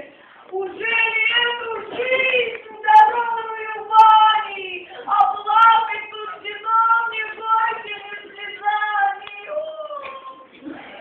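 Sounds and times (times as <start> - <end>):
woman singing: 0.0 - 10.5.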